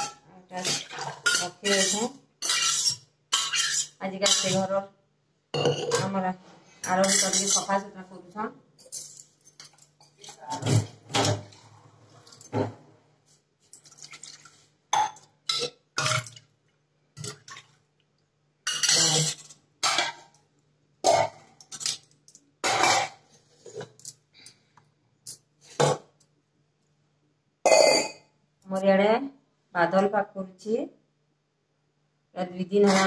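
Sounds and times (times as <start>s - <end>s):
utensils scraping: 0.0s - 4.6s, 6.8s - 7.8s
kitchen utensils and pots clattering: 0.0s - 4.7s, 5.6s - 6.2s, 6.8s - 7.8s, 8.8s - 12.9s, 18.6s - 20.3s, 21.0s - 24.1s.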